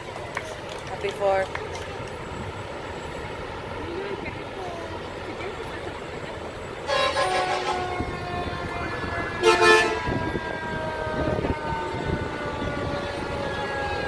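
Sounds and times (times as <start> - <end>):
fire engine horn blasts: 6.8 - 14.0.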